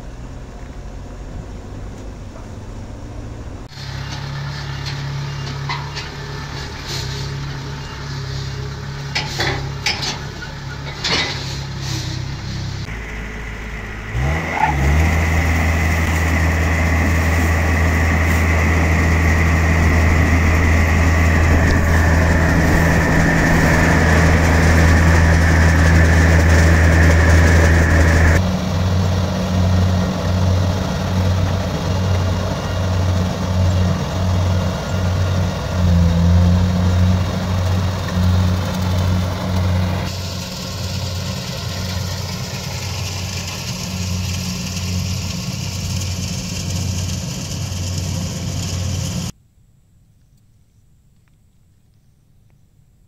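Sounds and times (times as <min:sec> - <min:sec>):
diesel engine running: 0:00.0 - 0:49.4
knocks and rattles: 0:09.1 - 0:11.8
high machine whine: 0:12.4 - 0:49.3.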